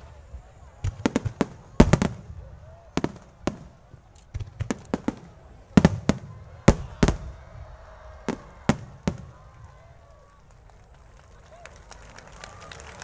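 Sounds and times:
firework shells bursting: 0.0 - 9.8.

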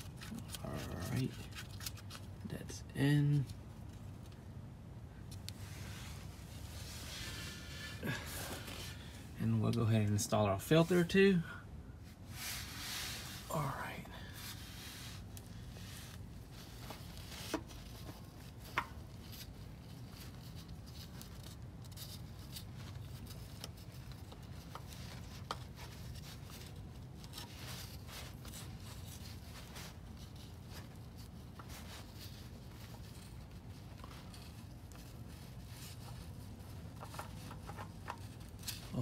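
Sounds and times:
steady low hum: 0.0 - 39.0
oil filter rubbing and rustling: 12.0 - 13.6, 14.3 - 39.0.

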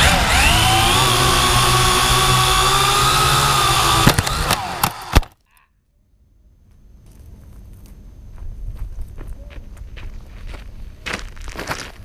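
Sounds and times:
drone motors whining: 0.0 - 5.4
drone tipping over clicks and knocks: 0.0 - 5.4.

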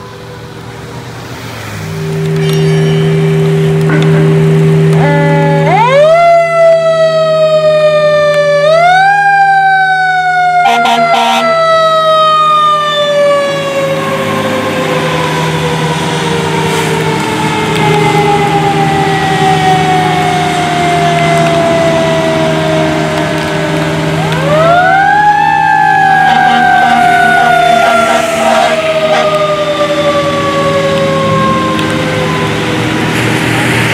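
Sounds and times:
horn blast: 1.8 - 6.2, 10.6 - 11.6, 26.2 - 29.8.

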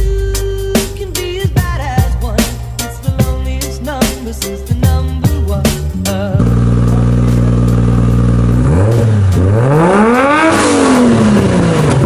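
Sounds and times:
car engine idling and revving: 4.9 - 12.0.

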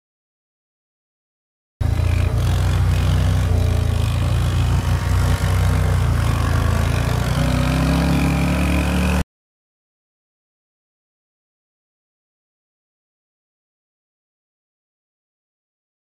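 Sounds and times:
off-road vehicle engine revving: 1.8 - 9.2.

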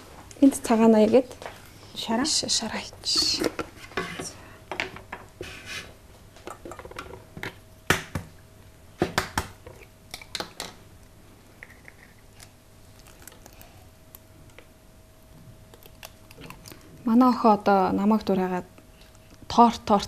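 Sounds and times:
faint steady hum: 0.0 - 20.0
eggs cracking on plastic bowl: 9.0 - 10.8.

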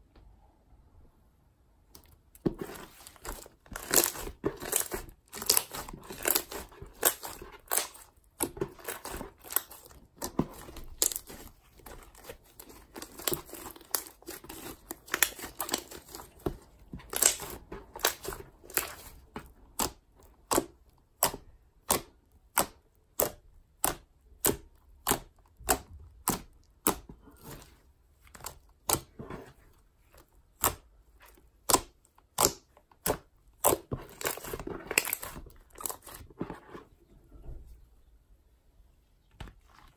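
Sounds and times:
slime crackling and popping: 2.6 - 19.2, 31.6 - 36.2.

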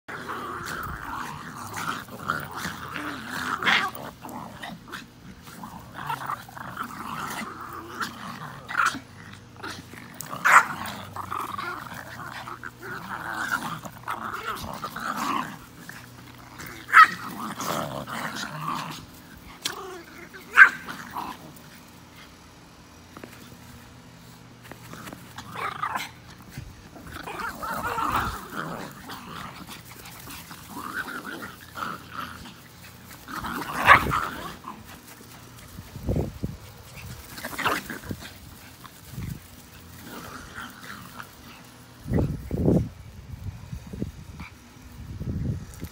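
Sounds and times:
small dogs growling: 0.0 - 45.9
dogs yapping: 0.1 - 21.5, 27.0 - 36.0.

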